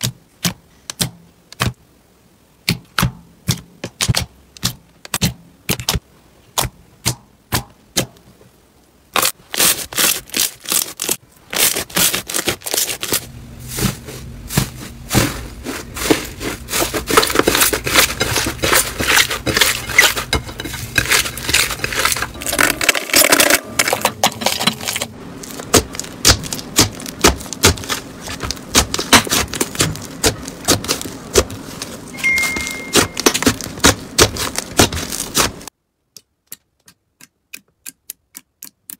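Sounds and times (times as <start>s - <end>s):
slime popping and squelching: 14.6s - 35.7s.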